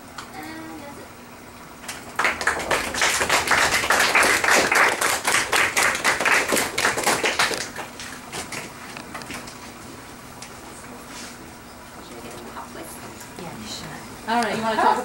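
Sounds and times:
small group applauding: 0:01.8 - 0:08.7.

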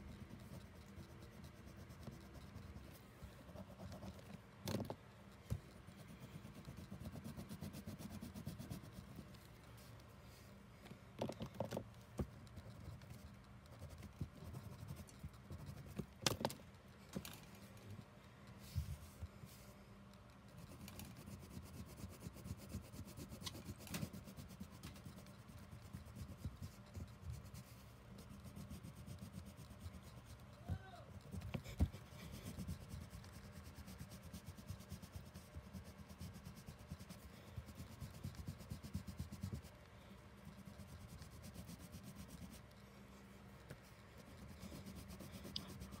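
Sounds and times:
crayon scribbling on paper: 0:00.0 - 0:04.3, 0:05.6 - 0:09.5, 0:12.5 - 0:16.1, 0:20.6 - 0:30.5, 0:31.2 - 0:39.7, 0:40.4 - 0:42.7, 0:44.2 - 0:46.0.

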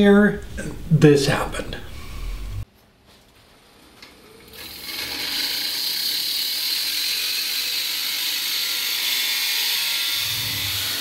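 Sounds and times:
wood lathe turning hiss: 0:04.5 - 0:11.0.

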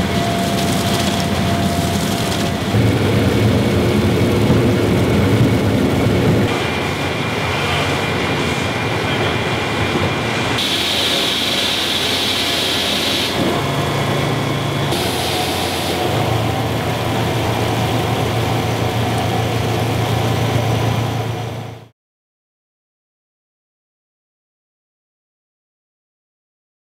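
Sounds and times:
machine hum: 0:00.0 - 0:21.9
hiss of flowing juice: 0:10.6 - 0:13.5, 0:14.9 - 0:16.4.

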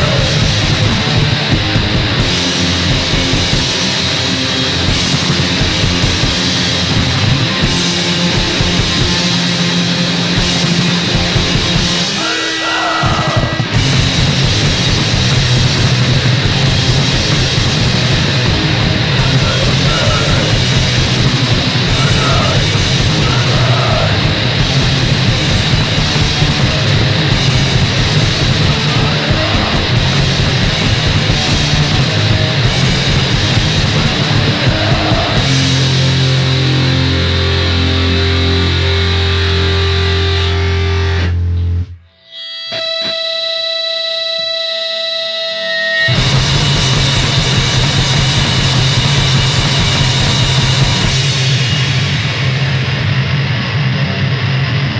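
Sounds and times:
punk band playing: 0:00.0 - 0:44.6, 0:46.0 - 0:54.9.

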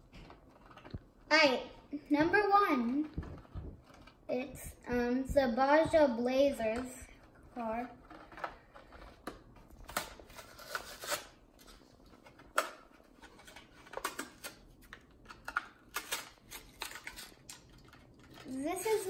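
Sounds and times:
plastic crackling: 0:00.0 - 0:01.3, 0:02.8 - 0:04.3, 0:06.8 - 0:19.0
cardboard ripping: 0:07.9 - 0:11.4.

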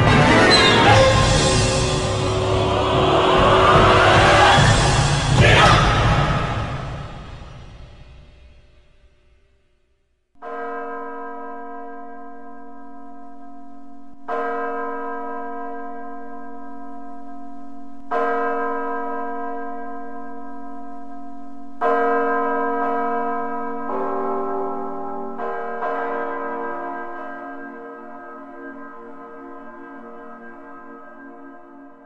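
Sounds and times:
orchestral music: 0:00.0 - 0:07.6
deep church-like bell strokes: 0:00.0 - 0:09.5, 0:10.4 - 0:32.0.

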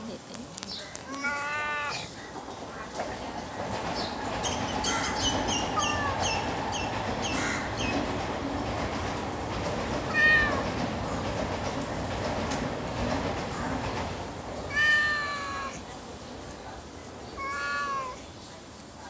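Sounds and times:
steady rumbling background noise: 0:00.0 - 0:19.0
cat meowing: 0:01.1 - 0:02.1, 0:05.8 - 0:06.4, 0:10.1 - 0:10.8, 0:14.7 - 0:15.8, 0:17.3 - 0:18.2.

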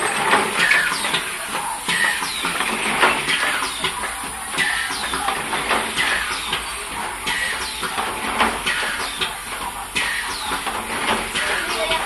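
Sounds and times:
machine rhythmic clatter: 0:00.0 - 0:12.0.

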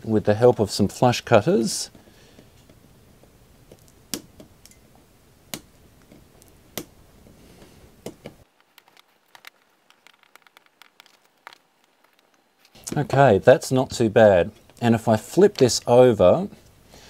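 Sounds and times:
small plastic clicks: 0:08.0 - 0:13.0.

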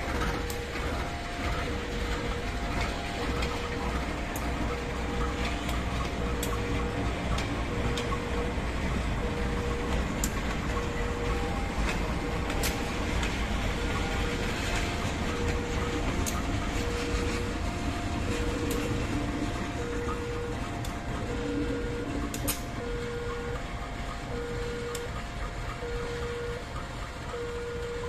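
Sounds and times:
diesel locomotive rumbling: 0:00.0 - 0:28.0
level crossing alarm: 0:00.0 - 0:28.0
wheels clicking over rail joints: 0:00.0 - 0:28.0.

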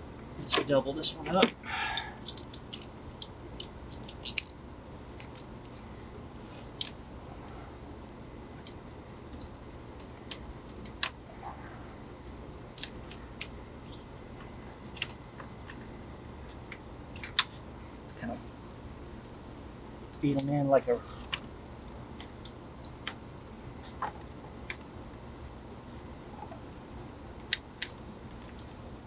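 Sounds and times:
steady low hum: 0:00.0 - 0:29.0
metallic clicks of ratchet and sockets: 0:03.9 - 0:04.5.

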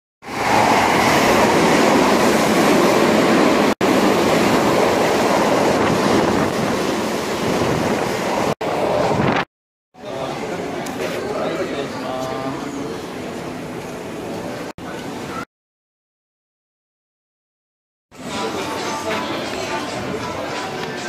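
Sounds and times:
train passing rumble: 0:00.3 - 0:09.2.

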